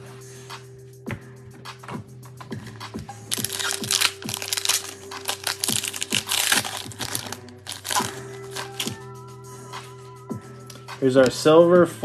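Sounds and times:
background music: 0.0s - 12.0s
foil wrapper crinkling: 3.3s - 9.0s.

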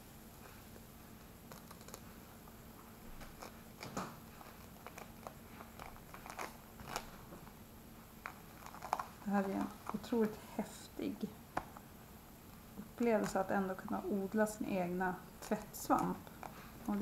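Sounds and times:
gourd skin peeled crackling: 3.2s - 7.6s, 8.2s - 10.8s, 15.4s - 17.0s.

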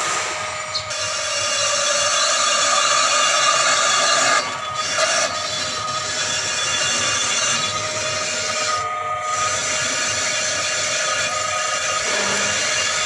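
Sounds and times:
brake lathe metallic hiss and whine: 6.0s - 13.0s.

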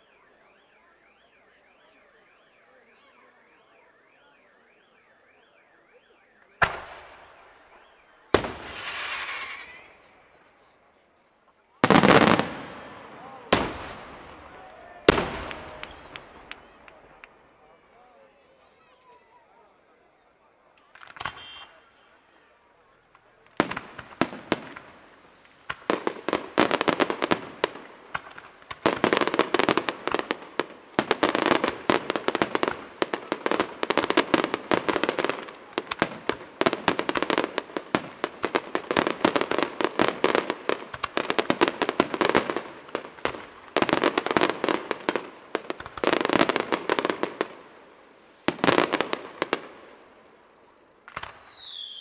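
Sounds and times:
falling whistle: 0.0s - 10.1s, 51.3s - 52.0s
fireworks bangs and crackle: 0.0s - 10.8s, 11.6s - 17.7s, 20.8s - 52.0s.

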